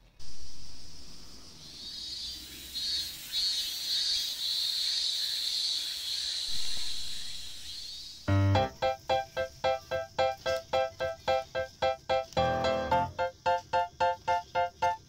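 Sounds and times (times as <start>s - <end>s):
insects buzzing: 0.0s - 15.0s
music with pitched notes: 8.3s - 15.0s.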